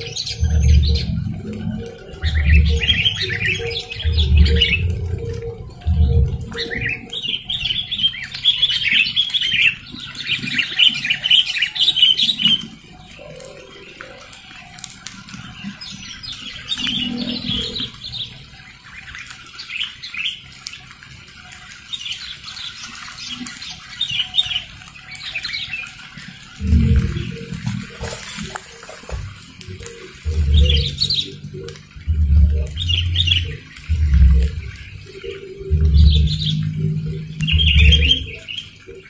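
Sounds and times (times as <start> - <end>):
birds chattering calls: 0.0 - 39.0
wing flutters: 20.5 - 39.0.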